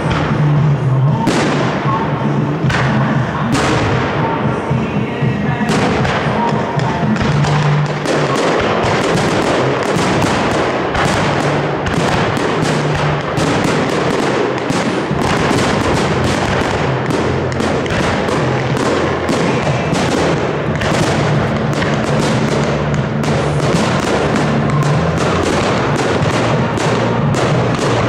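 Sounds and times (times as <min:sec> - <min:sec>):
music playing: 0:00.0 - 0:28.0
firework shells bursting: 0:05.6 - 0:28.0.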